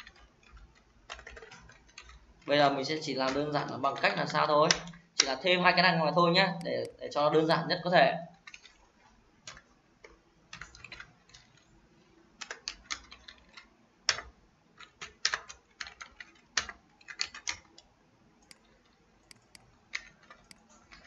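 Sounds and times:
typing on computer keyboard: 0.0 - 5.7, 8.3 - 11.8, 12.4 - 21.0.

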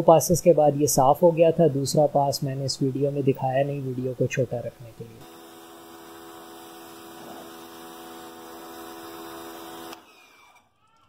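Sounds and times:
pressure washer motor hum: 4.6 - 10.2.

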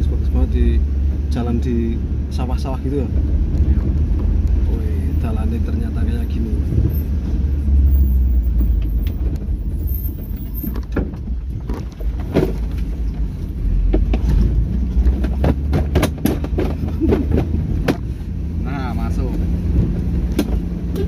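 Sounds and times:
vehicle driving rumble: 0.0 - 21.0
knocks and rattles from bumps: 8.5 - 18.1.

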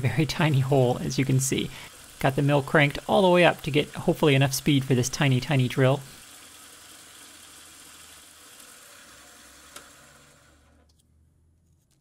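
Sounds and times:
milling machine spindle hiss: 0.3 - 10.6.

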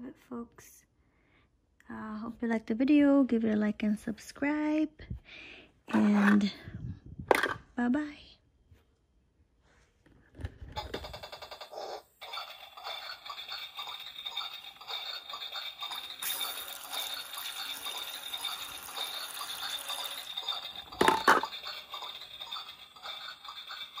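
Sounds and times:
toy faucet water splashing: 12.2 - 24.0.

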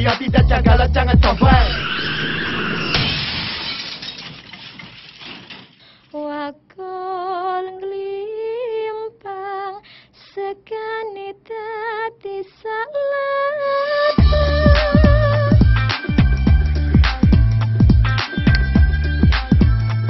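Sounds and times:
music with heavy bass beat: 0.0 - 1.8, 14.2 - 20.0
person singing unaccompanied: 0.0 - 1.8, 10.4 - 16.5.

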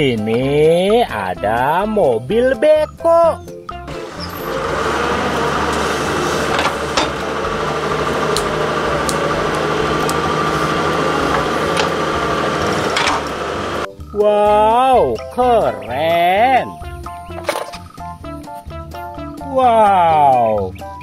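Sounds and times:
excavator diesel engine running: 3.9 - 13.9.

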